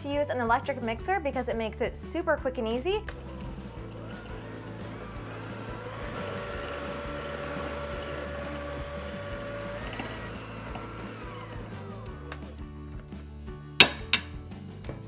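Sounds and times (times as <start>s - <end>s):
electric hand mixer whirring: 3.2s - 12.8s.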